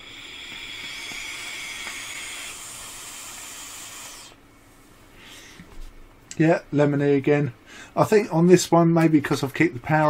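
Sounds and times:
vape coil sizzling: 0.0s - 4.4s.

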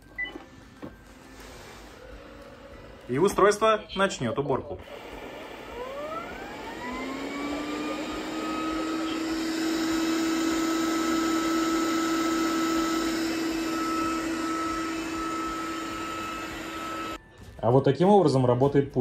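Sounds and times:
robot vacuum motor whining: 1.8s - 3.7s, 4.8s - 17.2s.

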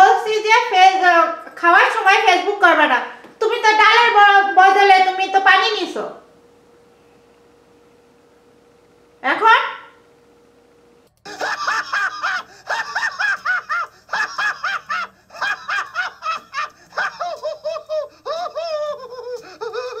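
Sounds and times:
high-pitched laughter: 11.3s - 20.0s.

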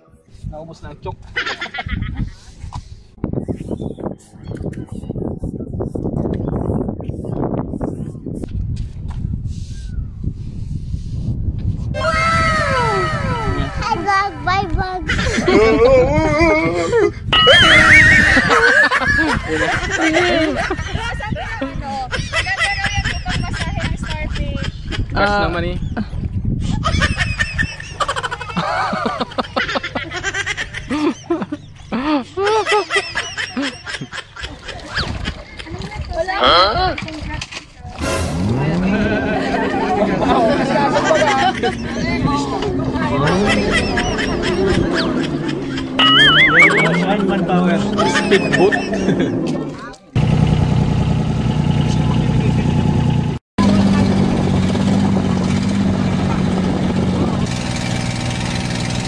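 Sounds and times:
people laughing and giggling: 1.2s - 2.6s, 14.9s - 36.3s, 38.3s - 49.9s
excited talk: 12.0s - 18.5s, 38.5s - 50.1s
boat engine humming: 38.0s - 59.0s.

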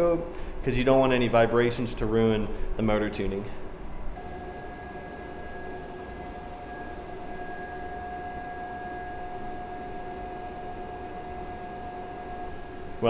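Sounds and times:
motors whining: 4.2s - 13.0s.

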